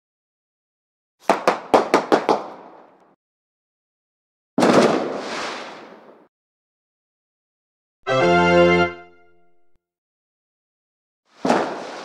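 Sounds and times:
firework bangs: 0:04.6 - 0:06.3, 0:11.4 - 0:12.0
firework crackle: 0:04.6 - 0:06.3, 0:11.4 - 0:12.0.

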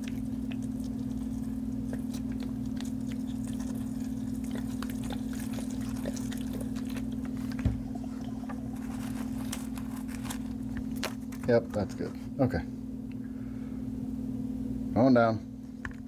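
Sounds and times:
potting mix crackling: 0:00.0 - 0:12.7
steady low hum: 0:00.0 - 0:16.0.

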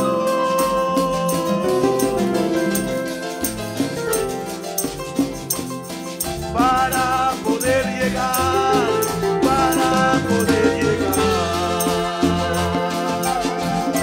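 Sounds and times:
congas: 0:00.0 - 0:14.0
metal shaker rhythm: 0:00.0 - 0:14.0
sustained melody: 0:00.0 - 0:14.0.

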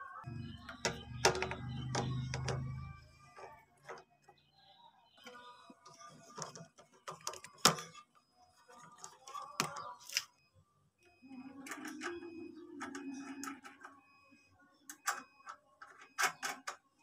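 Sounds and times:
clicks and taps on engine parts: 0:00.7 - 0:04.1.

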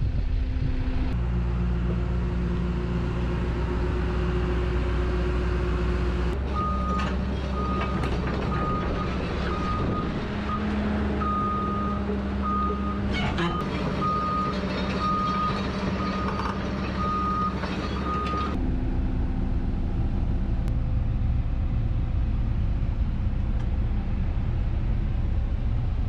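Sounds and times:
excavator diesel engine running: 0:00.0 - 0:26.0.

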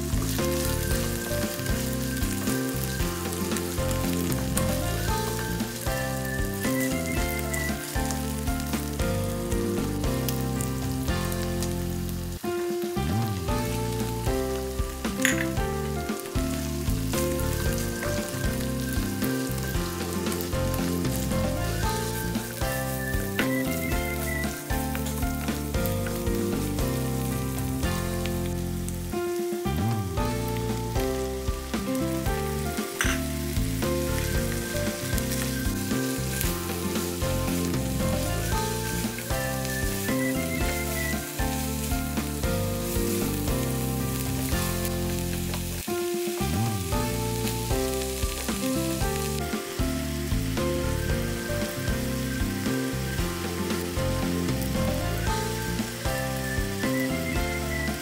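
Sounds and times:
background music: 0:00.0 - 0:58.0
food sizzling in a pan: 0:00.0 - 0:58.0.

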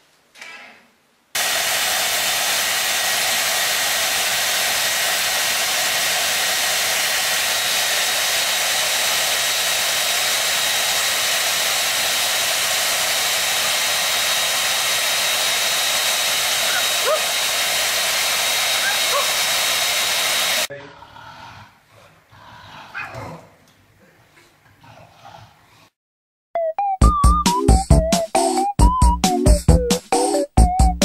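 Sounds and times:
hair dryer running: 0:01.4 - 0:20.7.

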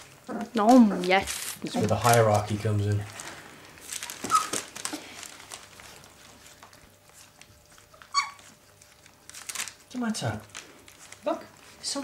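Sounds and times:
puppies licking and chewing food: 0:00.0 - 0:12.0
puppy whimper: 0:04.2 - 0:04.6, 0:07.8 - 0:08.8.

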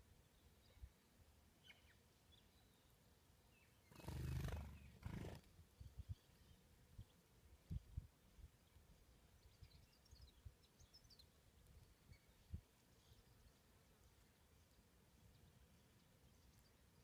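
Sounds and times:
faint bird chirp: 0:00.0 - 0:17.0
large bird wings flapping: 0:03.9 - 0:05.5.

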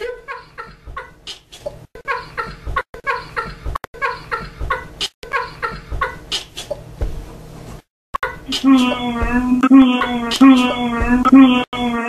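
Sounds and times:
man laughing hard: 0:08.4 - 0:12.0.

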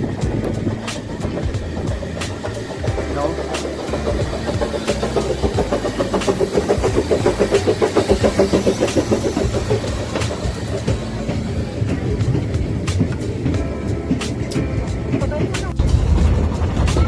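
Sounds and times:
steam train pulsing: 0:00.0 - 0:17.0.

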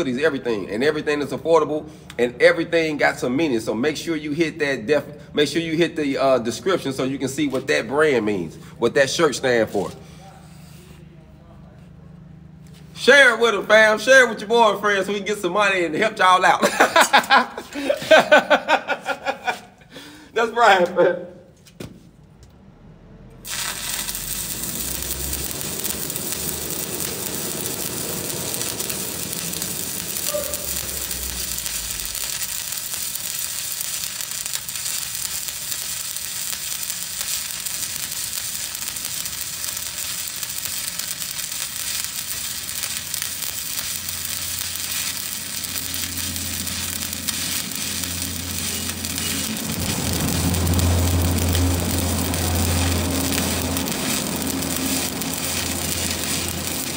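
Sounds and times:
welding arc crackling sizzle: 0:00.0 - 0:10.0, 0:12.6 - 0:19.8, 0:23.4 - 0:56.9
low hum: 0:22.4 - 0:33.0, 0:41.6 - 0:56.9.

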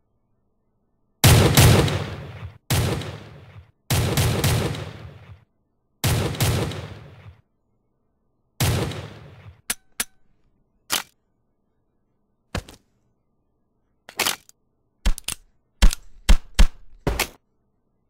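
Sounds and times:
gunshot ringing out: 0:01.2 - 0:05.4.

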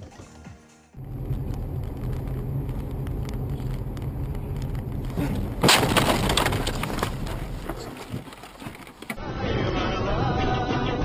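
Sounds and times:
car cabin rumble: 0:01.0 - 0:09.2
snow slamming against car: 0:05.2 - 0:09.1
car crashing into snowplough blade: 0:05.2 - 0:09.2.

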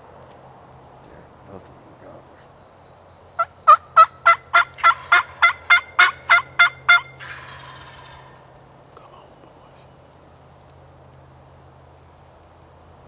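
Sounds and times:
turkey yelping: 0:03.4 - 0:08.3.

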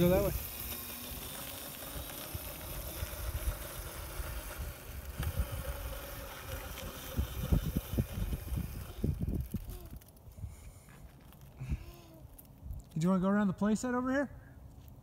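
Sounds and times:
electric motor and chain whine: 0:00.0 - 0:10.4
wind rumble on microphone: 0:02.3 - 0:10.8.

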